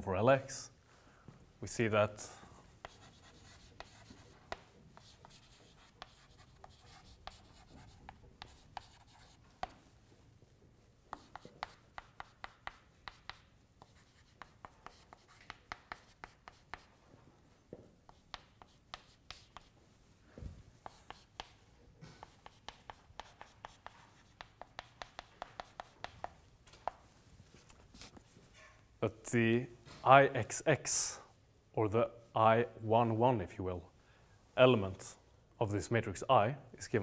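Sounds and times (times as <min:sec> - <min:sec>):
chalk tapping on chalkboard: 0:02.8 - 0:09.8, 0:11.1 - 0:16.9, 0:18.1 - 0:19.8, 0:20.8 - 0:27.0.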